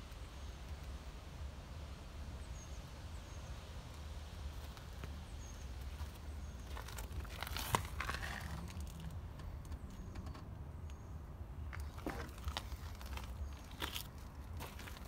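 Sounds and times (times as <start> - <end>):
footsteps crunching on gravel: 5.8 - 9.0, 11.8 - 15.0.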